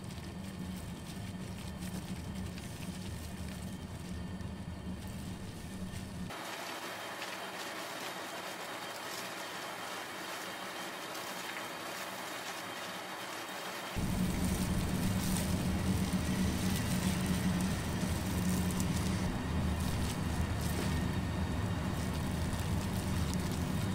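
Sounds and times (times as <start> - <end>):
steady low hum: 0.0 - 6.4, 13.9 - 23.9
hands squelching cabbage leaves: 0.0 - 23.9.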